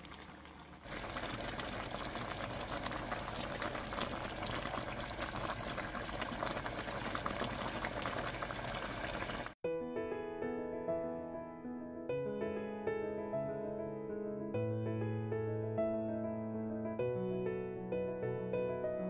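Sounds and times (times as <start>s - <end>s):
stew bubbling in a pot: 0.0s - 9.6s
piano music: 9.6s - 19.0s.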